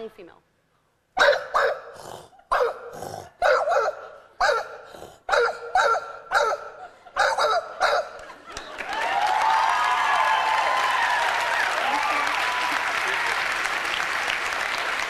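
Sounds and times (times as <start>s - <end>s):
woman imitating dog barks: 2.5s - 8.1s.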